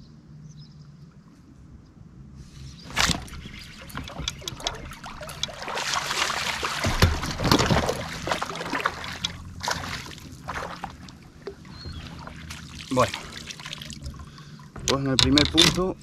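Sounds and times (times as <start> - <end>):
fish splashing at water surface: 2.9 - 14.8.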